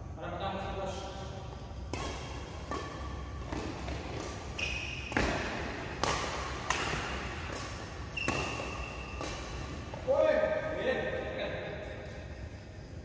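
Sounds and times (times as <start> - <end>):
sneakers squeaking on court: 1.8 - 10.0
rackets striking shuttlecock: 1.8 - 10.5.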